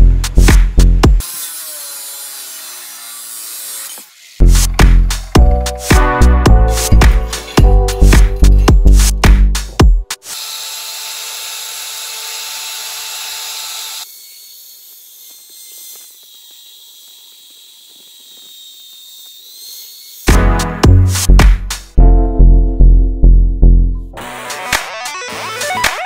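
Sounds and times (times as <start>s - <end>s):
background music: 4.4s - 10.2s, 20.3s - 26.0s.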